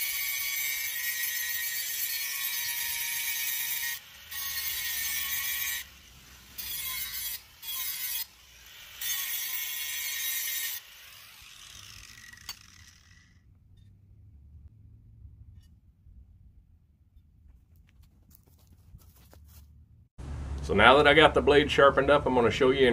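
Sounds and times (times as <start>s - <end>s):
bench grinder grinding steel: 0.0s - 13.9s
grinder motor running: 10.8s - 13.4s.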